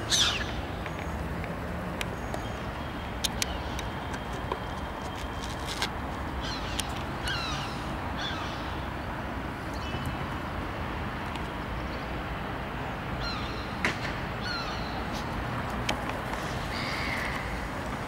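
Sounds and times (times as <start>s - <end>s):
gulls calling: 0.0s - 1.2s
steady background noise: 0.0s - 18.0s.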